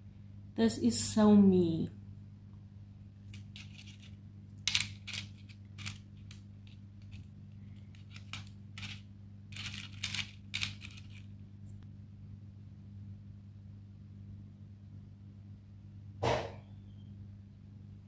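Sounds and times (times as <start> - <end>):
plastic nails clicking together: 4.6 - 7.2, 7.8 - 11.3.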